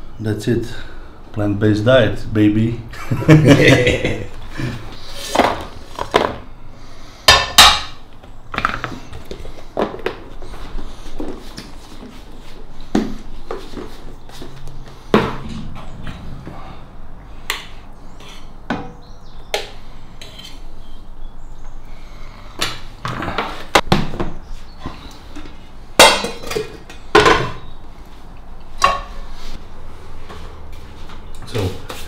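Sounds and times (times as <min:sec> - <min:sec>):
utensils and dishes knocking: 0:26.0 - 0:27.6.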